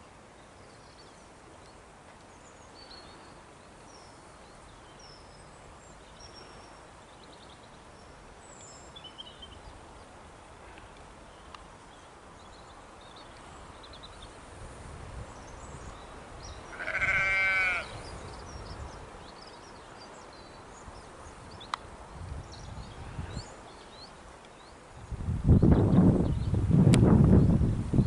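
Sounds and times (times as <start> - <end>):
small birds chirping: 0.4 - 14.5, 15.2 - 26.6
sheep bleating: 16.7 - 18.0.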